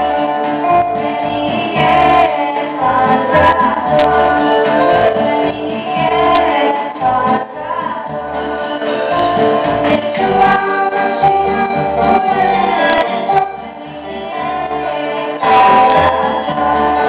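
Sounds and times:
children singing: 0.0 - 17.0
electronic keyboard: 0.0 - 17.0
nylon-string guitar: 0.0 - 17.0.

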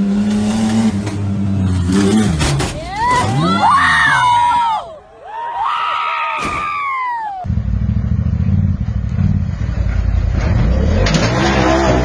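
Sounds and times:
people shouting: 2.8 - 7.5.

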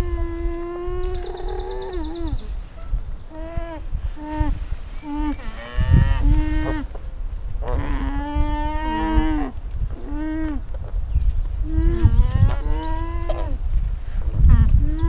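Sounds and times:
alpacas humming: 0.0 - 2.5, 3.3 - 7.0, 11.6 - 13.6.

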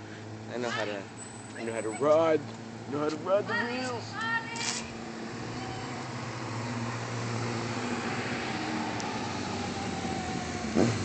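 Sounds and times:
motorcycle engine approaching: 4.9 - 11.0.

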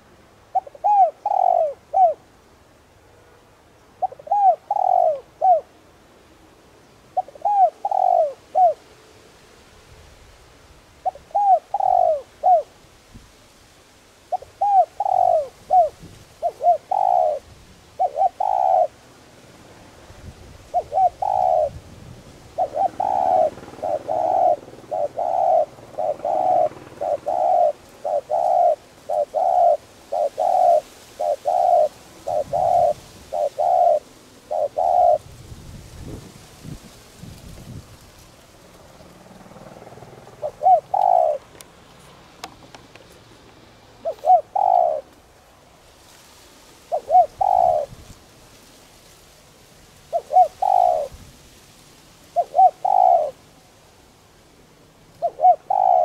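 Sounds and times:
dove cooing: 0.0 - 2.3, 4.0 - 5.8, 7.1 - 8.9, 11.0 - 12.8, 14.3 - 19.0, 20.6 - 35.4, 39.0 - 41.6, 43.9 - 45.3, 46.8 - 48.1, 50.0 - 51.2, 52.3 - 53.6, 55.1 - 56.0.

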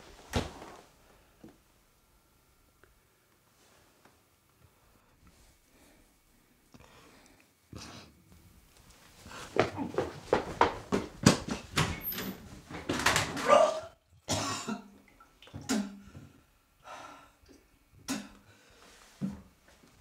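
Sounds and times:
man retching and coughing: 13.4 - 14.9.

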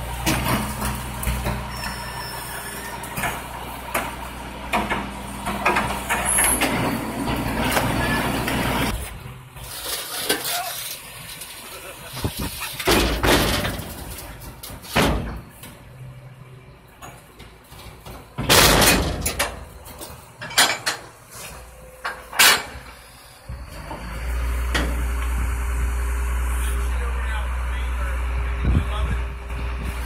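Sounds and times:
truck engine droning: 0.0 - 30.0
metal clanks and bangs: 3.0 - 8.9, 12.4 - 15.9, 16.9 - 23.0.

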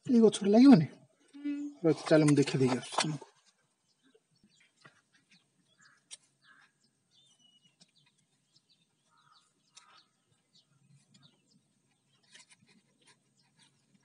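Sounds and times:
faint bird chirps: 3.8 - 14.0.

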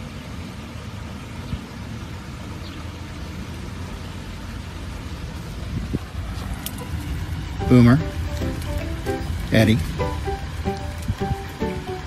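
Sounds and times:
outdoor rushing noise: 3.7 - 12.0.

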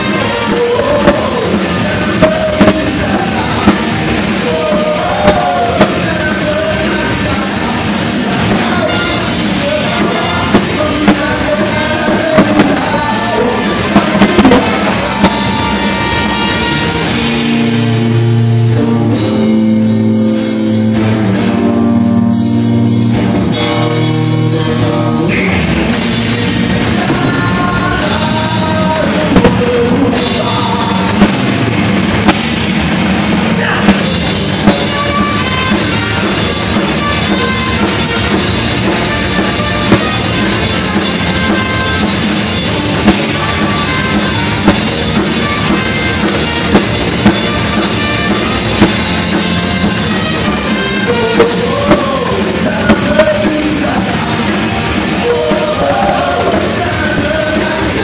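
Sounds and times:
person singing: 0.0 - 17.9, 23.5 - 31.4, 50.6 - 58.0
drum hits: 0.0 - 21.7, 22.6 - 58.0
horn section notes: 0.0 - 25.0, 34.2 - 58.0
live rock band playing: 0.0 - 58.0.

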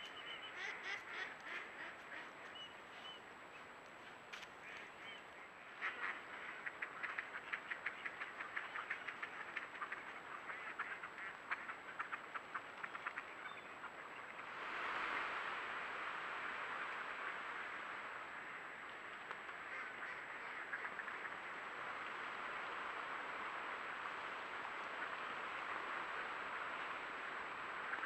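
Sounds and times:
ducks quacking: 0.0 - 2.6, 4.6 - 14.0.

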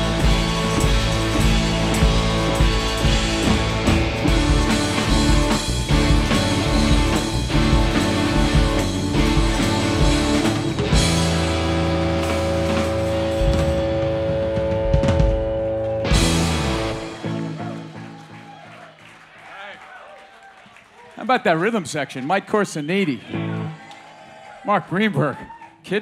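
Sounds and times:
live rock band playing: 0.0 - 18.4.

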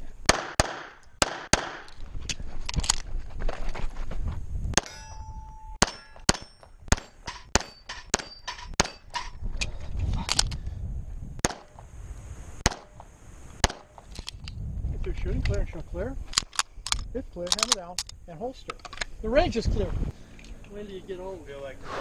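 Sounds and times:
pistol shots: 0.3 - 1.9, 5.8 - 9.2, 11.4 - 11.7, 12.6 - 12.9, 13.6 - 14.0
steel targets ringing: 4.8 - 9.3.

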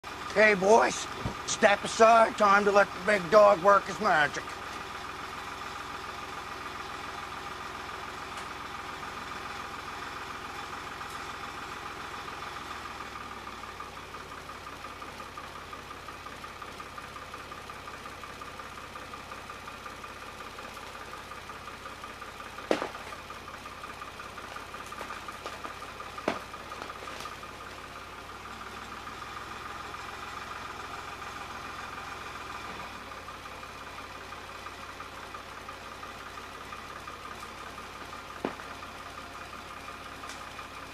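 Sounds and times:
tractor engine running: 0.0 - 40.9
tree cracking: 24.6 - 27.6.

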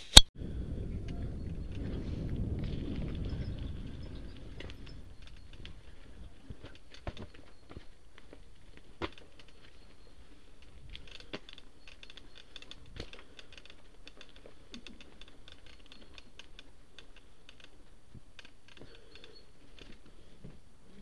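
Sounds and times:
bike rattling on gravel: 0.5 - 20.4.

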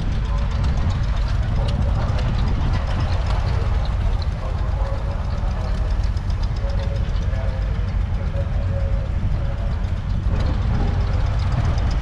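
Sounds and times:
diesel tractor engine idling: 0.0 - 12.0.

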